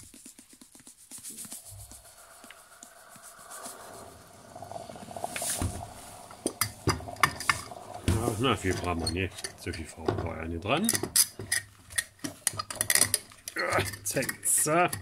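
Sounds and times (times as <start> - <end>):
hiss of powder dissolving in water: 0.3 - 10.0.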